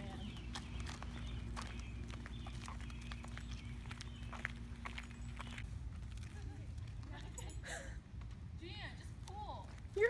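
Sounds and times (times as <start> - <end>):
flip-flop footsteps on asphalt: 0.0 - 7.4
low outdoor rumble: 0.0 - 10.0.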